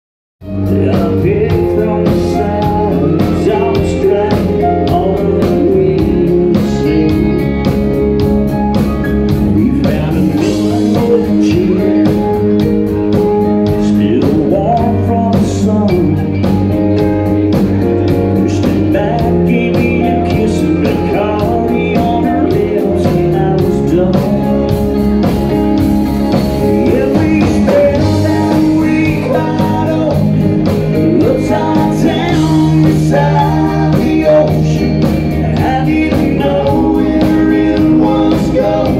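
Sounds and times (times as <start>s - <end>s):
man singing: 0.4s - 8.0s, 9.2s - 25.2s, 26.3s - 38.9s
rock band playing: 0.4s - 38.9s.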